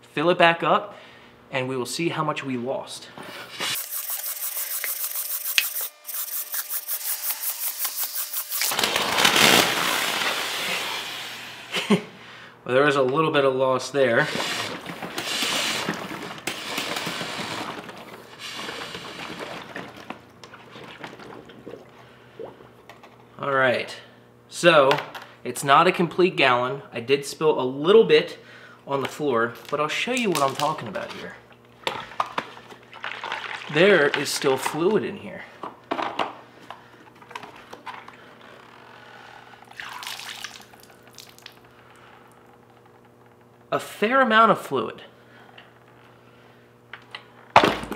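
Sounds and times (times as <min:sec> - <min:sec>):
water splashing onto concrete floor: 0:39.7 - 0:41.6.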